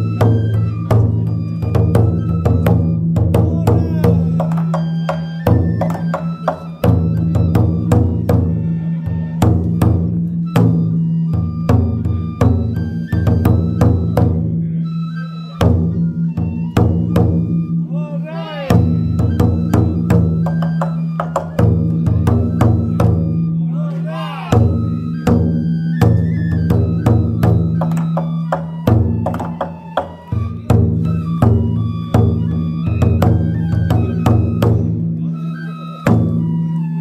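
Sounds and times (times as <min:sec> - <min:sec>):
taiko drum beaten fast: 0:00.0 - 0:14.5, 0:15.6 - 0:17.7, 0:18.7 - 0:23.4, 0:24.5 - 0:35.0
person calling out: 0:03.4 - 0:04.5, 0:17.9 - 0:18.8, 0:23.6 - 0:24.7.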